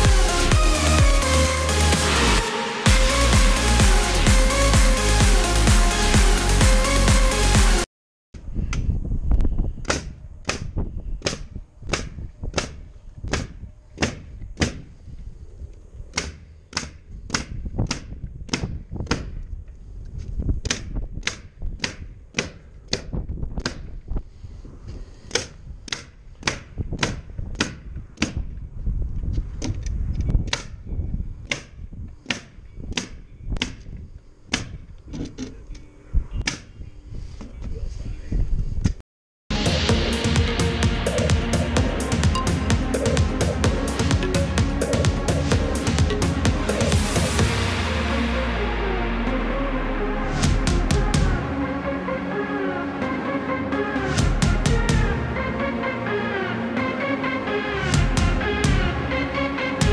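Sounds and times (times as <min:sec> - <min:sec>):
low rumble: 0:39.5 - 0:59.9.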